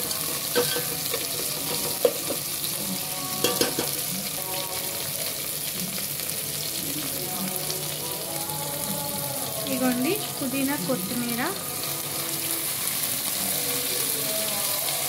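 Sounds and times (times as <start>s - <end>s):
vegetables sizzling in hot oil: 0.0s - 15.0s
spoon knocking and scraping pot: 0.2s - 2.5s, 3.4s - 4.1s.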